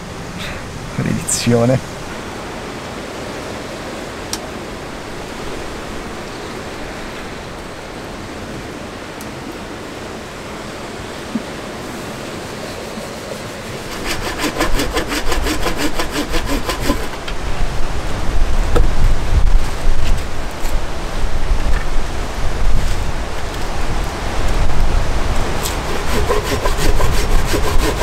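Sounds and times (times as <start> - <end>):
storm wind rushing: 0.0 - 28.0
hand saw cutting log: 12.6 - 17.3, 25.6 - 28.0.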